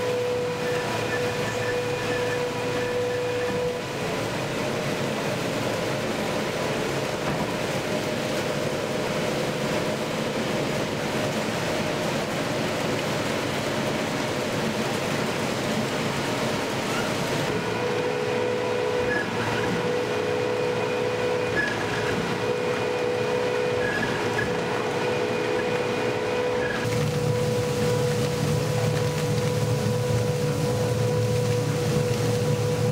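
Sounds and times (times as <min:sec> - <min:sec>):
shredder grinding: 0:00.0 - 0:08.1, 0:17.5 - 0:32.9
constant hum: 0:00.0 - 0:32.9.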